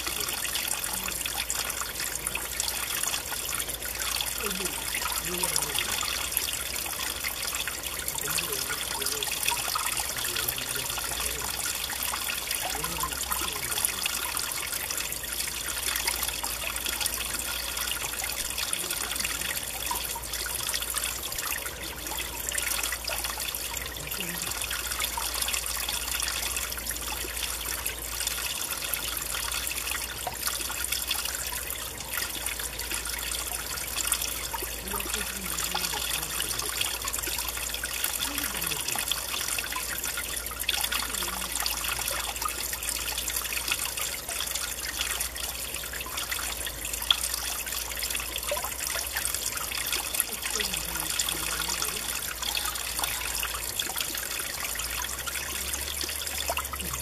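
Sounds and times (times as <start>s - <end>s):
stream flowing: 0.0s - 57.0s.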